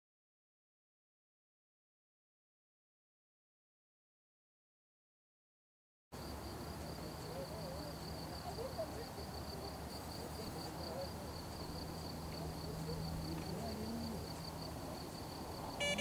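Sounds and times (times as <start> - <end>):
cricket chirping: 6.2 - 16.0.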